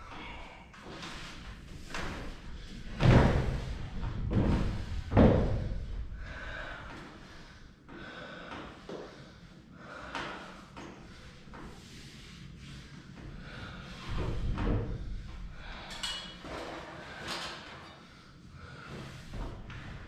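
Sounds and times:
heavy wooden thuds: 1.8 - 6.0.

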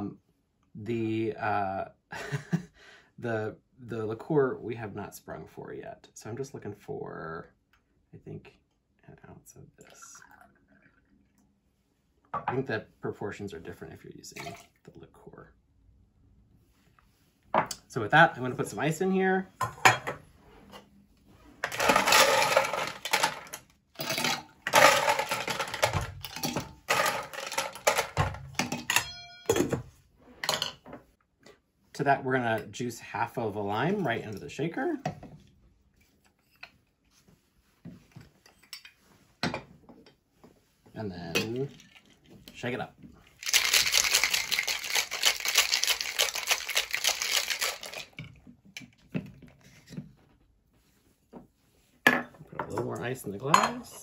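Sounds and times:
ice cubes rattling in a shaker: 21.7 - 28.2, 41.7 - 42.2, 43.4 - 48.2
ringing clink: 29.0 - 29.5.

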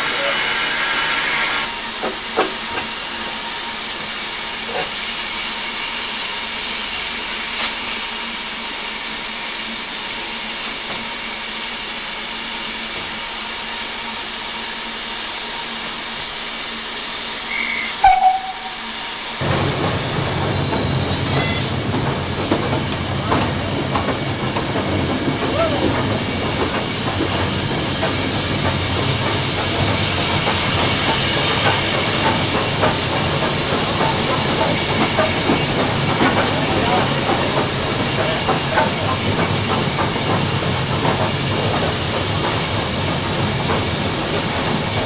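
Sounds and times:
steam hissing: 0.0 - 45.0
locomotive whistle toot: 17.5 - 19.0
locomotive rumble moving: 17.9 - 45.0.

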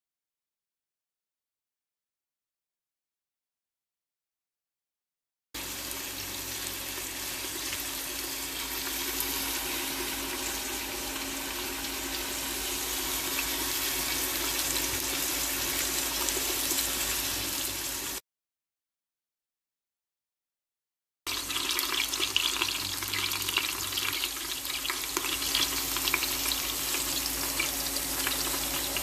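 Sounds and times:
cooking appliance hiss and hum: 5.6 - 18.2, 21.3 - 29.0.

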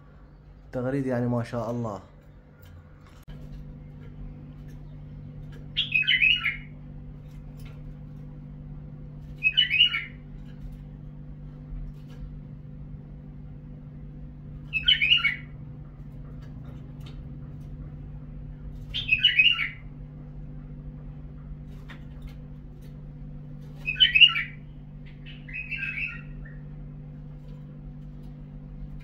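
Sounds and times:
steady low hum: 0.0 - 29.0
bird singing whistled phrases: 5.8 - 6.7, 18.9 - 19.8, 23.8 - 24.6, 25.2 - 26.6.

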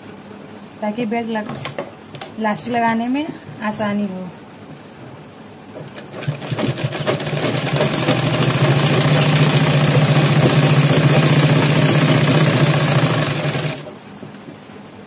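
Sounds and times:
sewing machine stitching: 5.8 - 13.9.

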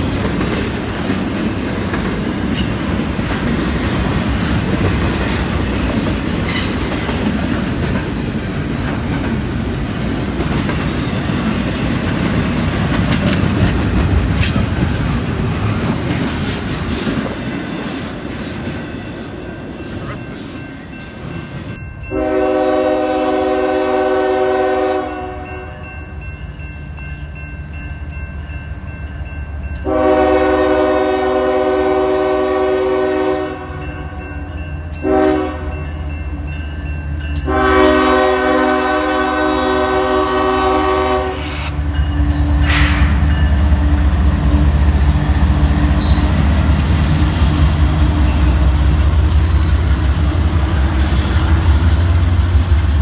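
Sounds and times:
train wheels rolling: 0.0 - 21.8, 38.8 - 53.0
diesel locomotive engine: 0.0 - 53.0
locomotive air horn: 22.1 - 25.8, 29.8 - 34.2, 35.0 - 35.8, 37.4 - 41.8.

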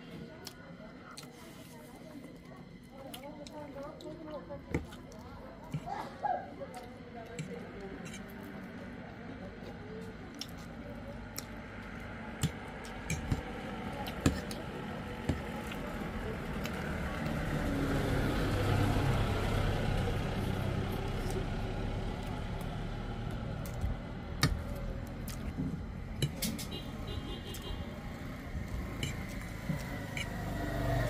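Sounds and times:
noodles slurped and chewed: 0.4 - 23.8
vehicle passing engine rumble: 11.2 - 31.0.

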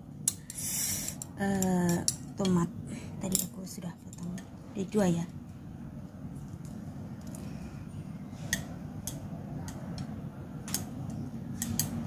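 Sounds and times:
low steady hum: 0.0 - 12.0
chopsticks clicking against ceramic bowl: 8.5 - 12.0.

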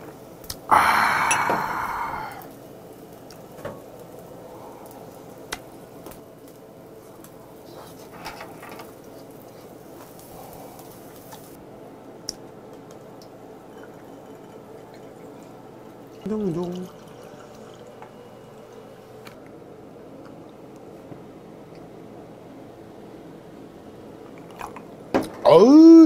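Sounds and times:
grill hissing: 0.0 - 19.3.

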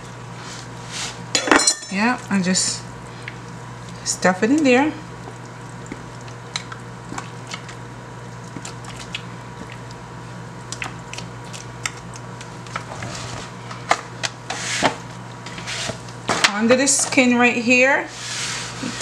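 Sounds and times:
steady low hum: 0.0 - 19.0
hands squishing wet seasoning into meat: 3.1 - 12.9.

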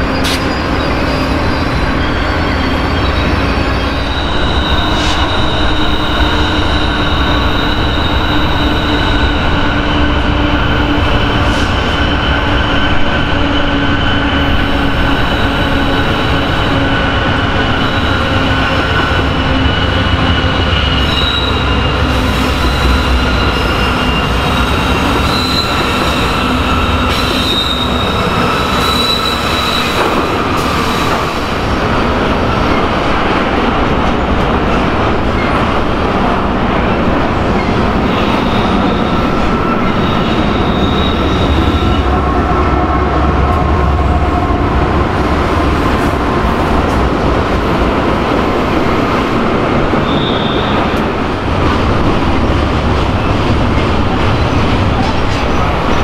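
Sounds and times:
high wheel squeal: 0.0 - 16.8, 17.6 - 31.4, 37.6 - 42.3, 50.0 - 51.0
freight train wheels rumbling: 0.0 - 56.0.

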